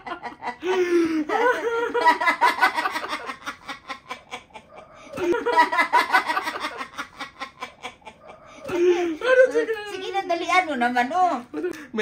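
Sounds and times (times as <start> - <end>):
laughter: 0.0 - 9.4.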